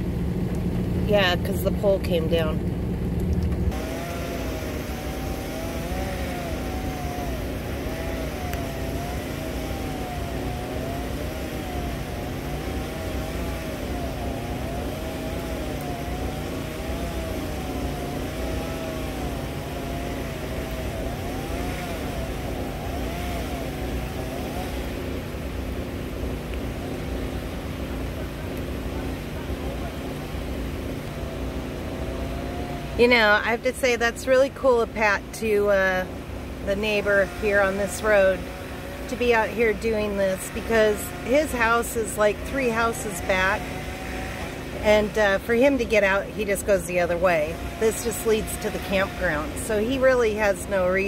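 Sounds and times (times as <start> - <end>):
steady low rumble: 0.0 - 38.4
distant chainsaw cutting: 3.7 - 51.0.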